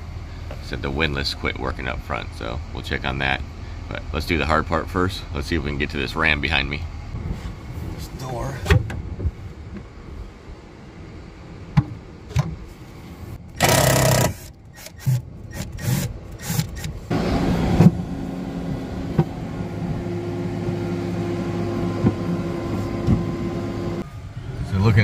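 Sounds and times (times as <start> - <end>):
low engine hum: 0.0 - 25.0
cordless drill backing out screws: 13.6 - 17.0.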